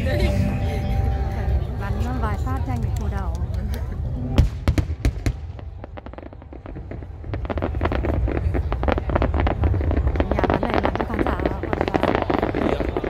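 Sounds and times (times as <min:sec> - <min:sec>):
firework bang: 0:04.4 - 0:13.0
firework crackling: 0:04.4 - 0:13.0.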